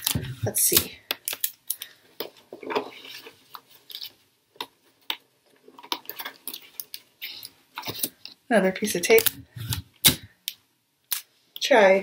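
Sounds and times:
crinkly tape rustling: 0.0s - 8.4s.

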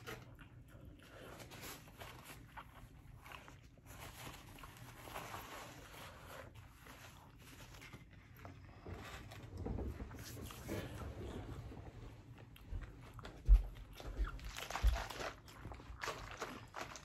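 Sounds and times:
chewing and mouth sounds: 12.2s - 17.0s.

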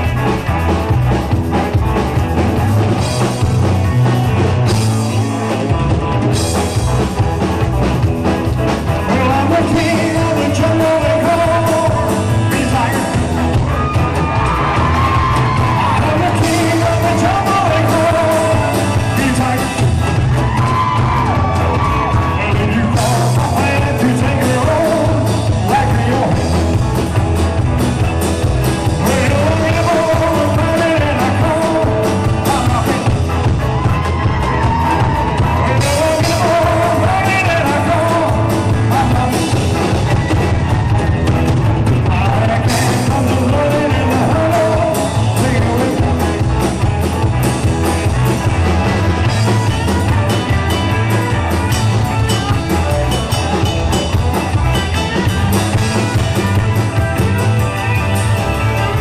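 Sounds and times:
rock and roll band playing: 0.0s - 59.0s
man singing: 8.9s - 20.4s, 21.0s - 26.8s, 28.8s - 33.6s, 34.6s - 40.5s, 41.8s - 46.9s.

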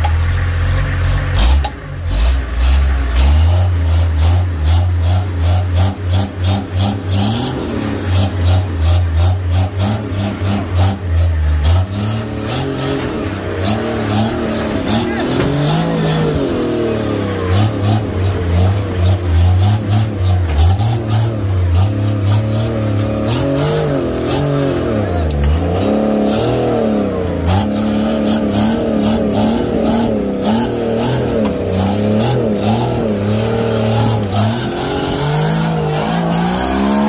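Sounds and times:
off-road engine revving: 0.0s - 37.0s.

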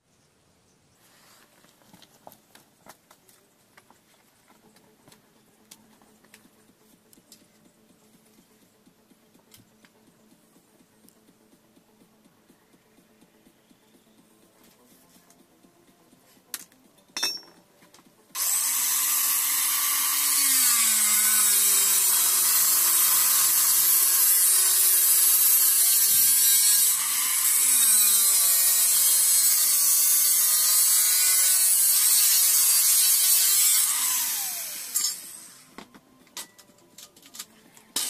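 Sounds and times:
angle grinder cutting steel: 18.4s - 35.7s.

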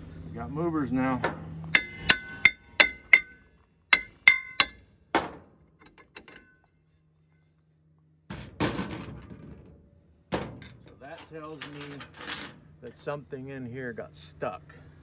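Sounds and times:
hammer clanging on brake drum: 1.3s - 5.4s.

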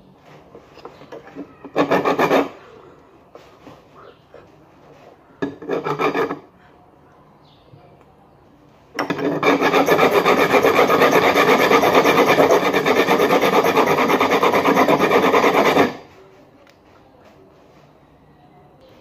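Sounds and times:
hand file scraping metal: 0.6s - 2.8s, 5.0s - 6.5s, 9.0s - 16.2s.

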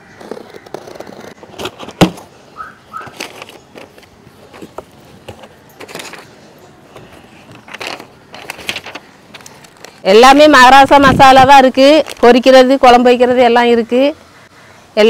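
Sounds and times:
knife cutting cardboard tape: 0.1s - 2.2s
paper leaflet rustling: 3.0s - 10.3s
cardboard flaps folding: 7.0s - 10.0s.

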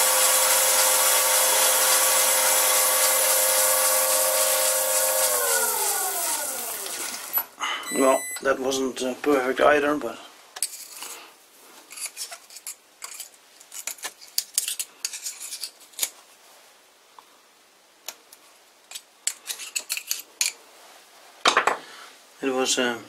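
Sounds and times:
metal chips scratching and clinking: 11.9s - 16.1s, 18.9s - 20.6s.

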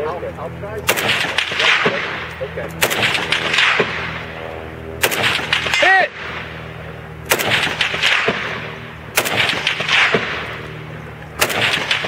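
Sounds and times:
rifle shots with echo: 0.8s - 4.4s, 5.0s - 6.6s, 7.2s - 12.0s.

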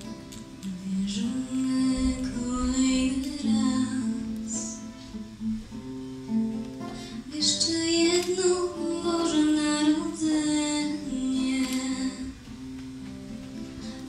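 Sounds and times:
acoustic guitar: 0.0s - 14.0s
girl singing: 0.6s - 5.0s, 7.2s - 12.4s.

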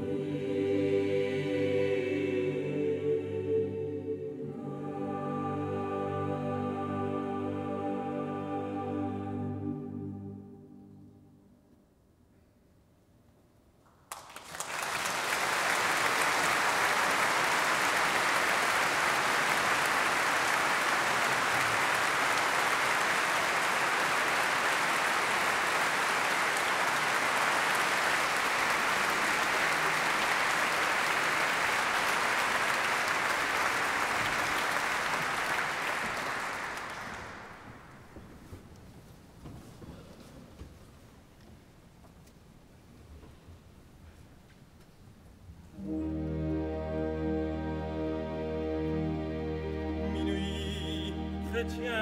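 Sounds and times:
audience applauding: 14.1s - 38.1s.

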